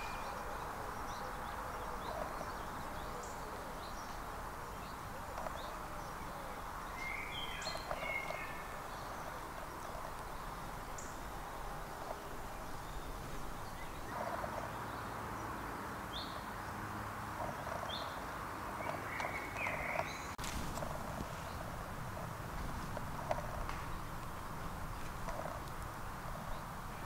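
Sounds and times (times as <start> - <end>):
bird chirps and calls: 0.0 - 15.1, 18.8 - 20.4
background hiss: 0.0 - 27.0
rustles in dry leaf litter: 20.4 - 27.0.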